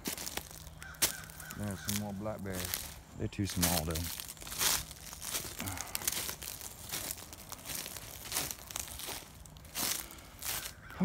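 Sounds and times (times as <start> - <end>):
dry leaves crunching and rustling: 0.0 - 11.0.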